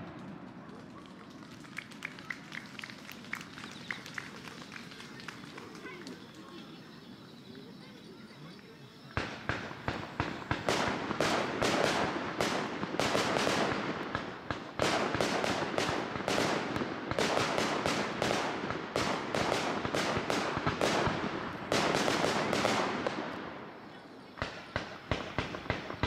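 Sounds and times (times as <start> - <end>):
fireworks crackling: 0.0 - 26.0
fireworks bangs: 9.0 - 26.0.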